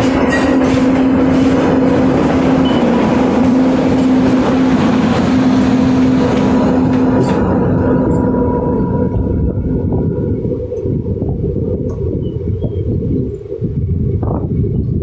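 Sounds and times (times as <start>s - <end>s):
electric locomotive hum: 0.0s - 15.0s
train wheels on rail: 0.0s - 15.0s.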